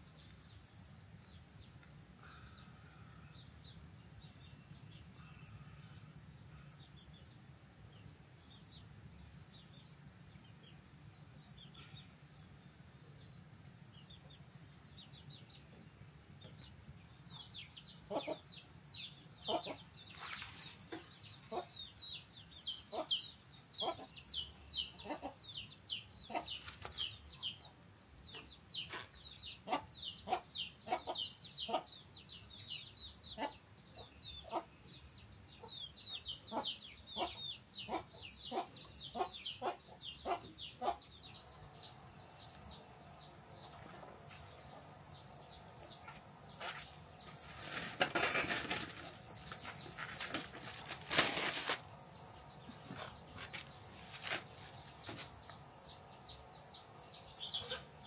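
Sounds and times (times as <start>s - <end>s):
rustling and handling noise: 46.5s - 52.0s, 52.8s - 55.4s.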